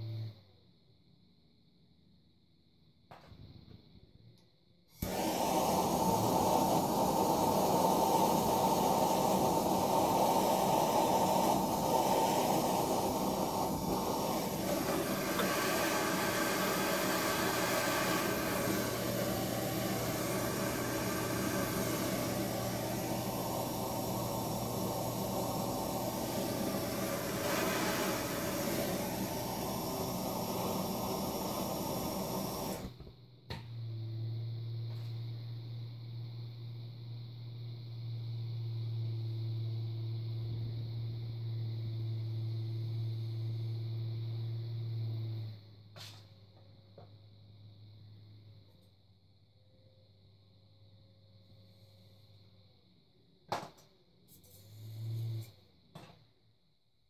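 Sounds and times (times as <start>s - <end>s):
hot-air blower hissing: 4.9s - 46.4s, 54.3s - 55.6s.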